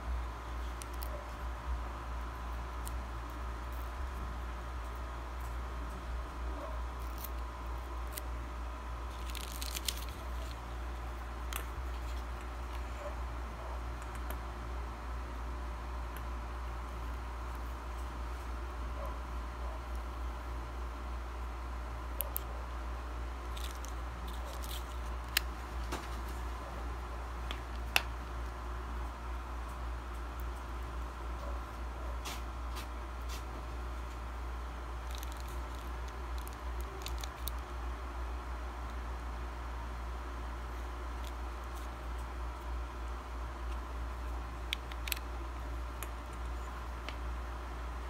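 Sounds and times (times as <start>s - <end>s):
steady low hum: 0.0s - 48.0s
soft crinkling of film: 0.1s - 14.5s, 21.5s - 39.0s, 40.1s - 47.5s
packaging crackle: 9.0s - 10.8s, 23.4s - 26.4s, 35.0s - 37.7s.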